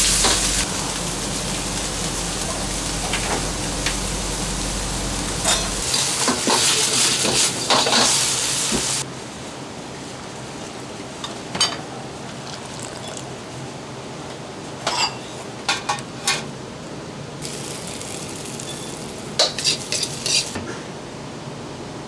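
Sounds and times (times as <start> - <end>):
steady background noise: 0.0 - 22.0
hiss: 5.4 - 9.0.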